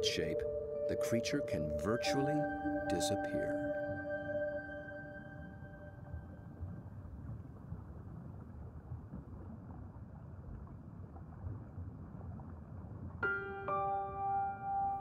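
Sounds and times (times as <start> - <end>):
underwater rumble of moving water: 5.9 - 13.2.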